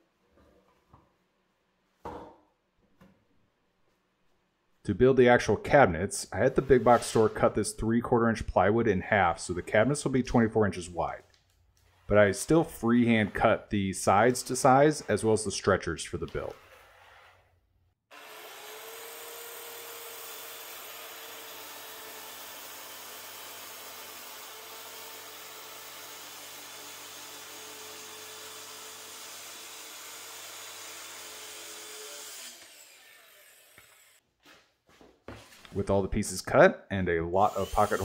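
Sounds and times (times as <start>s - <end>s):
circular saw cutting plywood: 6.4s - 7.7s, 11.8s - 34.2s, 37.4s - 38.0s.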